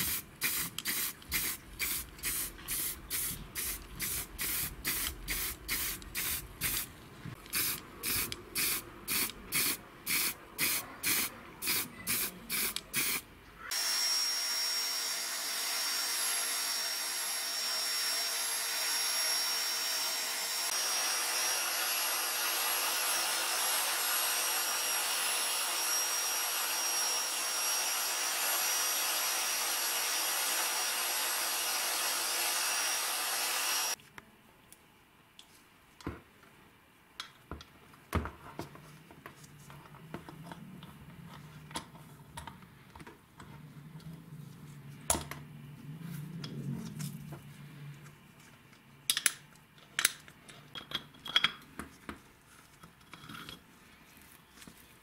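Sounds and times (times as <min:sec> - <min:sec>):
motor spinning wire brush: 0:13.7 - 0:34.0.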